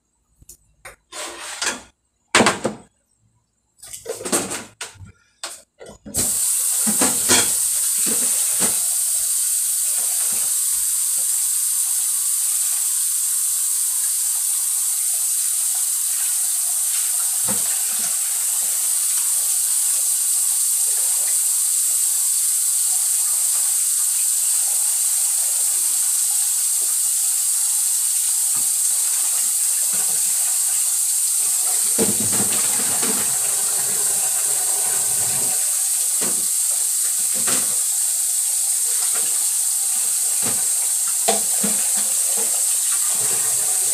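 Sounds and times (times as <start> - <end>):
sauce simmering hiss: 6.2 - 43.9.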